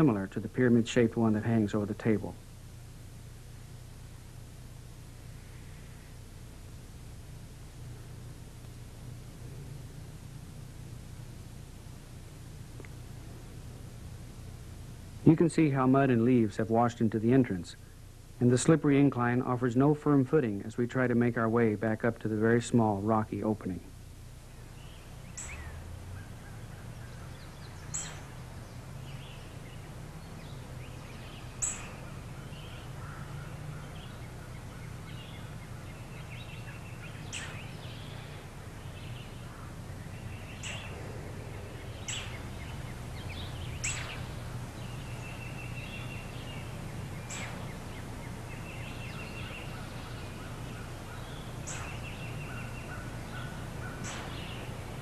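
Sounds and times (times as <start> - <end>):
steady low hum: 0.0 - 55.0
birds chip notes: 24.4 - 55.0.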